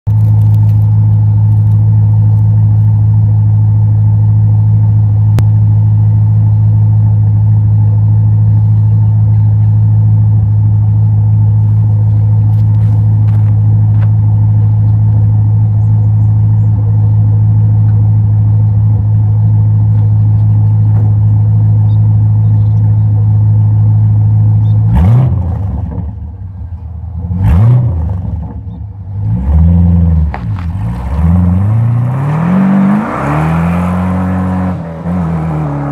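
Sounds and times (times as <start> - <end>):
car engine idling loud: 0.2 - 27.4
engine revving: 24.6 - 26.3, 27.2 - 35.9.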